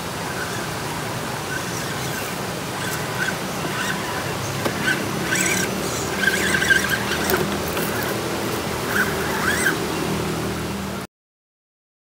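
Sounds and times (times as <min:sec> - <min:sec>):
birds chirping: 0:00.3 - 0:10.3
toy car motor whirring: 0:01.6 - 0:09.8.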